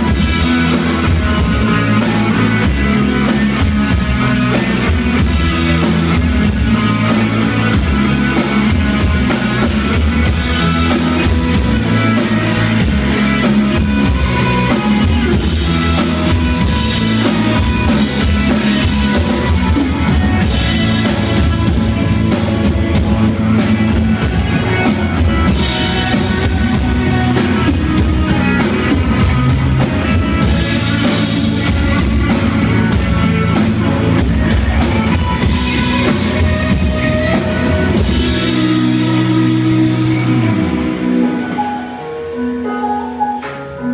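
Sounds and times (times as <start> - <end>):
bass guitar: 0.0 - 43.9
drum kit: 0.0 - 43.9
electric guitars: 0.0 - 43.9.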